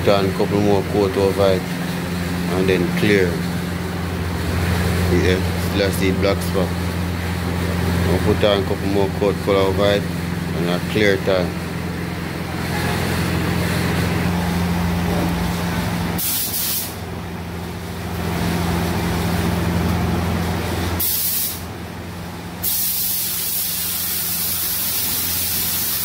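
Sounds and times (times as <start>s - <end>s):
steady low hum: 0.0s - 26.0s
spray gun hissing: 16.2s - 17.0s, 21.0s - 21.6s, 22.6s - 26.0s.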